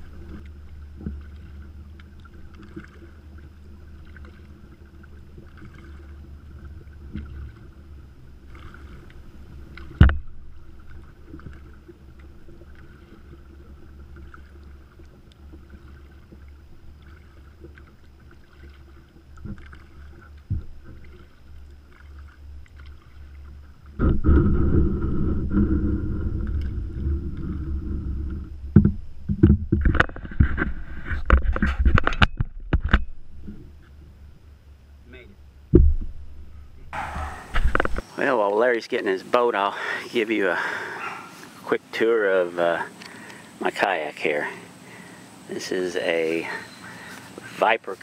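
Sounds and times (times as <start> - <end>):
knocks and clunks against boat: 0.0 - 34.3, 35.7 - 38.1
paddle and water noise: 0.0 - 48.0
loud rumbling: 35.8 - 38.0.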